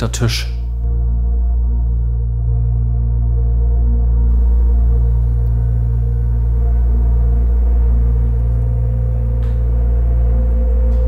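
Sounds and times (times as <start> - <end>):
dark ambient low drone music: 0.0 - 11.0.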